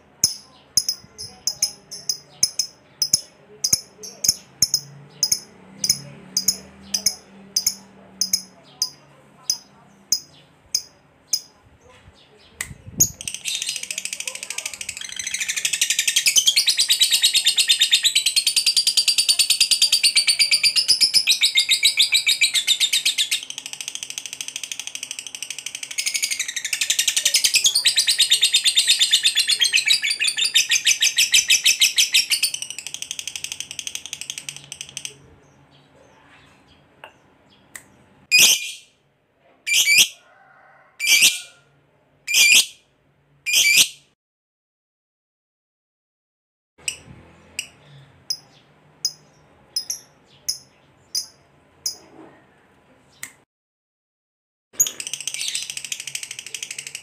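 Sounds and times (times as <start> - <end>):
bird chattering trill: 0.2 - 11.6, 13.0 - 35.2, 43.5 - 44.0.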